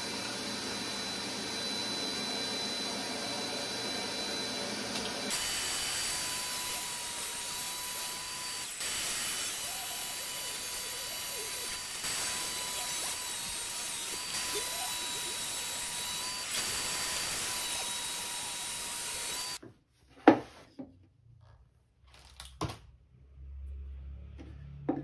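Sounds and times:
table saw motor whine: 0:00.0 - 0:19.6.

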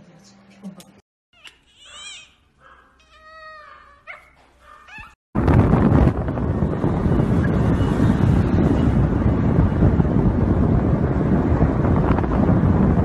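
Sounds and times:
cat meowing: 0:03.0 - 0:04.3
loud steady rushing noise: 0:05.4 - 0:13.0.

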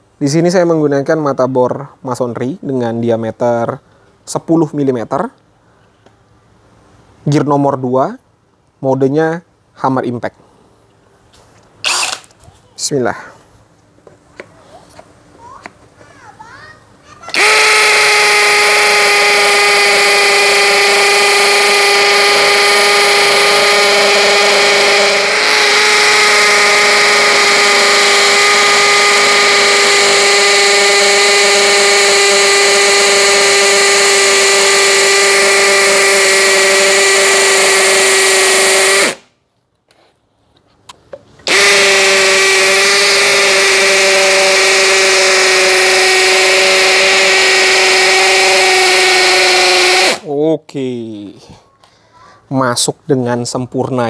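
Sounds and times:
hammer drill boring into concrete: 0:11.8 - 0:12.3, 0:17.3 - 0:39.2, 0:41.4 - 0:50.3.

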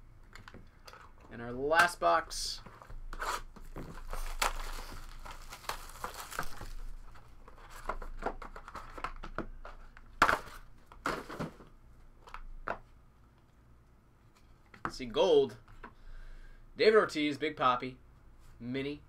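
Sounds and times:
plastic shrink wrap tearing: 0:04.0 - 0:06.8.

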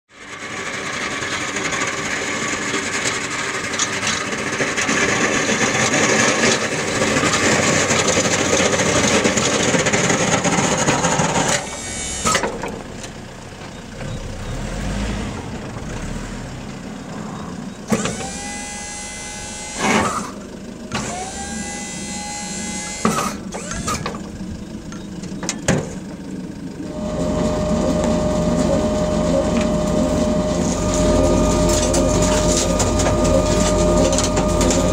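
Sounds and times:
truck engine and snow rushing: 0:00.1 - 0:34.9
short rising whines: 0:10.6 - 0:12.7, 0:14.1 - 0:25.2, 0:26.8 - 0:34.9
steady hum: 0:26.7 - 0:34.9.

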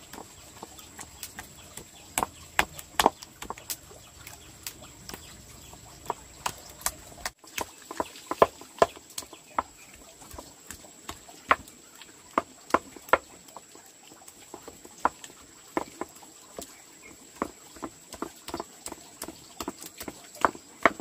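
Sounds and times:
light sharp knocks and taps: 0:00.1 - 0:05.3.

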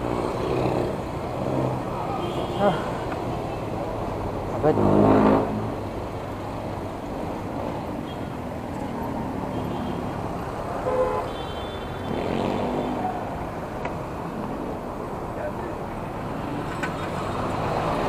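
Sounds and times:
vehicle horn toot: 0:10.8 - 0:12.1
car and van engines running: 0:12.0 - 0:18.0.

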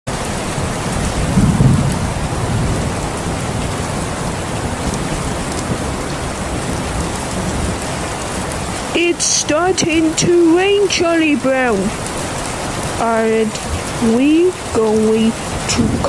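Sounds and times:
low rumble of thunder: 0:00.1 - 0:13.0, 0:15.4 - 0:16.0
heavy rain falling: 0:00.1 - 0:16.0.

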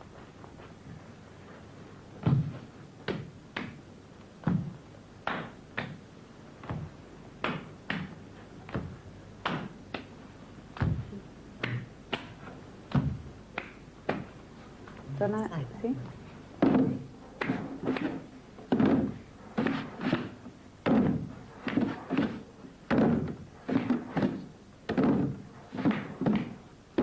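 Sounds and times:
feet and hands thudding on floor: 0:02.2 - 0:03.8, 0:06.6 - 0:14.4.

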